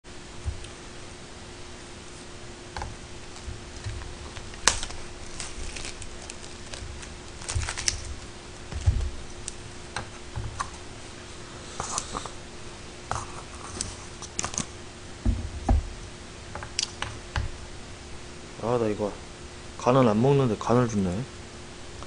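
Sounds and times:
faint steady hum: 0.0 - 22.0
food packaging rustling: 2.1 - 10.9.

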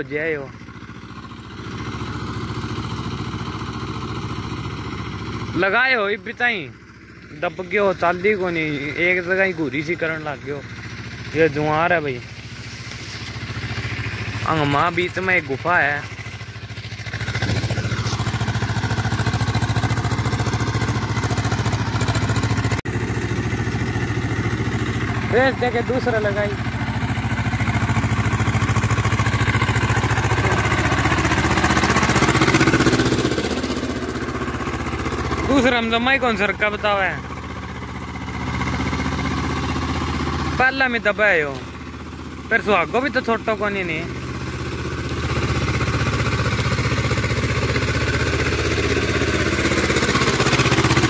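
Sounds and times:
tractor diesel engine running: 0.0 - 51.0.

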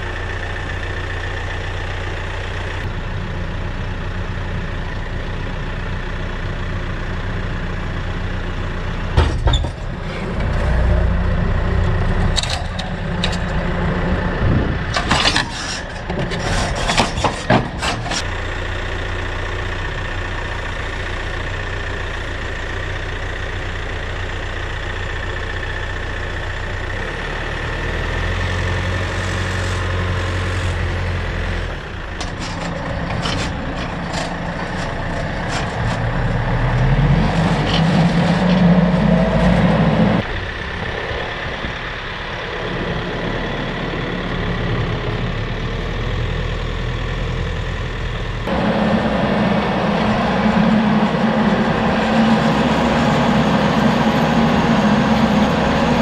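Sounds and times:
tractor diesel engine running: 0.0 - 56.0
metallic clanks and rattles: 9.2 - 10.7, 11.9 - 13.8, 14.8 - 18.3, 32.0 - 38.7.

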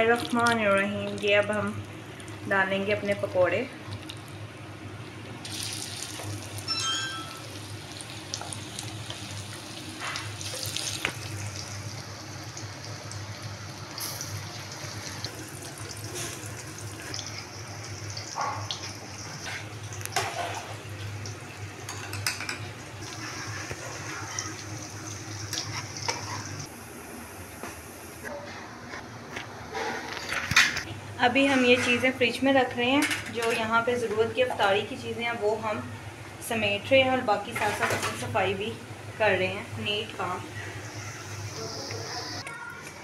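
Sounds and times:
batter sizzling in hot oil: 5.4 - 26.7, 39.2 - 42.4.

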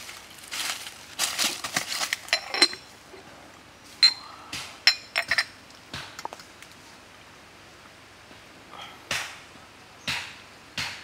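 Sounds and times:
clay teapot clinking: 2.3 - 2.9, 4.0 - 4.3, 4.9 - 5.6.

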